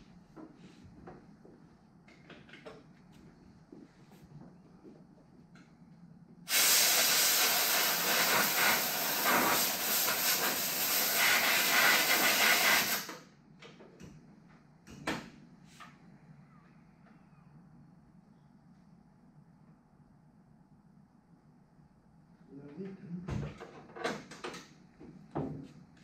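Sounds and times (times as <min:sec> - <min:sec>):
pressurised jet hissing: 0:06.5 - 0:13.1.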